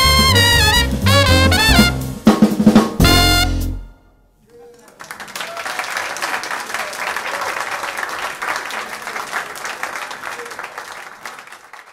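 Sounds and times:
audience applauding: 4.5 - 11.9.

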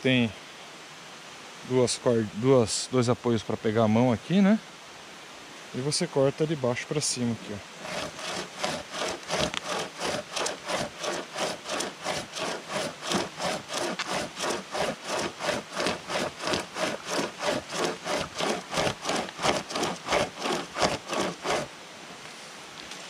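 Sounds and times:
hand saw cutting wood: 7.8 - 21.7.

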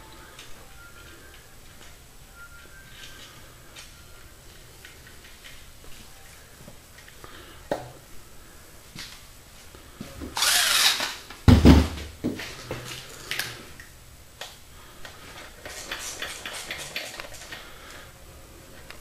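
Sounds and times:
power tool bursts: 10.4 - 11.2.

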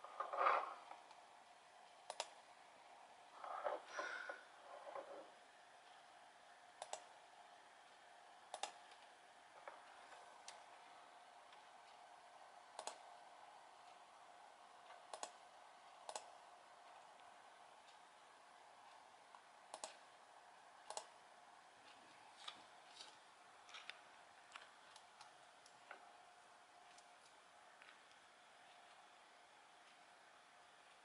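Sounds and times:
faint steady hum: 0.0 - 31.0
computer mouse buttons clicking: 2.1 - 2.4, 6.8 - 7.1, 8.5 - 9.8, 12.8 - 13.1, 14.9 - 15.4, 16.0 - 16.4, 19.7 - 20.1, 20.8 - 21.2.

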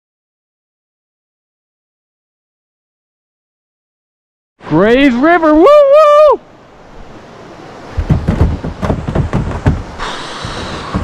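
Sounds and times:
river current rushing: 4.6 - 11.0
irregular thumps and knocks: 7.9 - 11.0.

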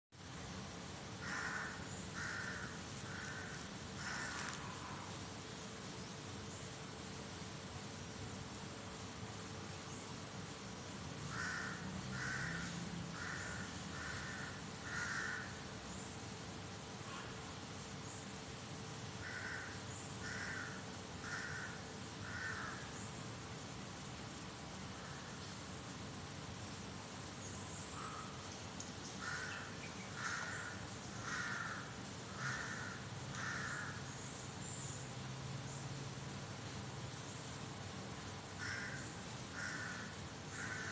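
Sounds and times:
crow cawing: 1.2 - 5.0, 11.3 - 15.6, 19.2 - 22.9, 29.2 - 34.1, 38.6 - 40.9.

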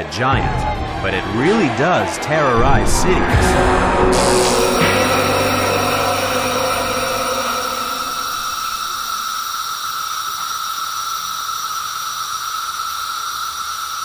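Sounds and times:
cicada buzzing: 4.2 - 14.0.

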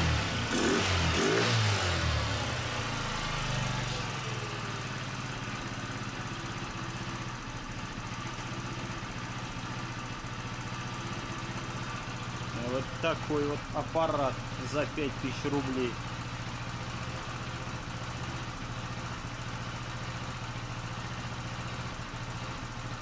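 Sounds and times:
scooter engine idling: 0.0 - 23.0.

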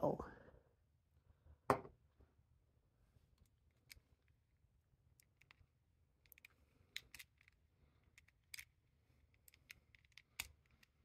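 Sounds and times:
plastic puzzle pieces clicking: 6.2 - 11.0.

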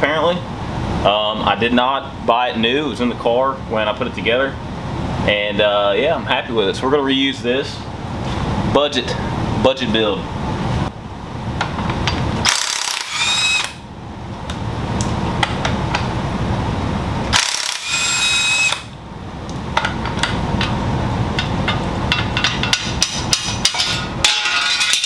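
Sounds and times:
high whine: 0.0 - 25.0
impact wrench hammering bolts: 17.3 - 18.9, 21.4 - 25.0.

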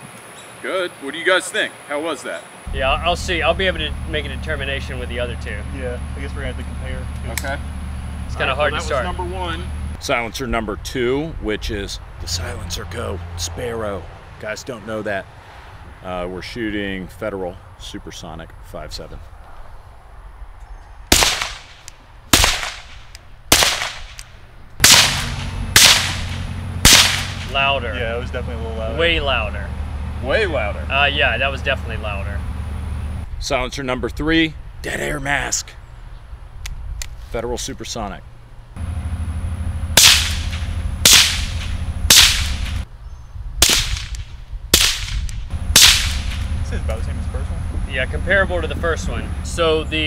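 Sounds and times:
suppressed pistol shots: 21.1 - 27.5, 40.0 - 42.8, 43.6 - 46.5.

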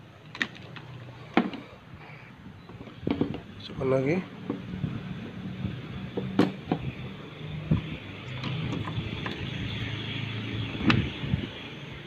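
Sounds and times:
handling clicks and knocks: 0.3 - 1.7, 2.7 - 3.5.

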